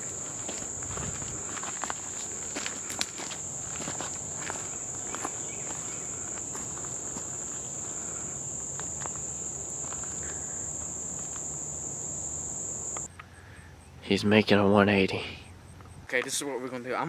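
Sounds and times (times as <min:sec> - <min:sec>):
footsteps on dirt path: 0:00.0 - 0:11.6
high-pitched insect chorus: 0:00.0 - 0:15.5.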